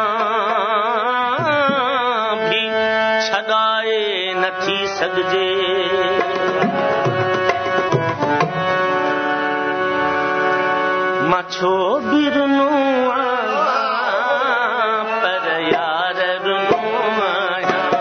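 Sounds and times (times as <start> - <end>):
person singing folk song: 0.0 - 6.6, 11.2 - 18.0
held instrumental notes: 4.4 - 18.0
dholak drum strokes: 13.4 - 18.0.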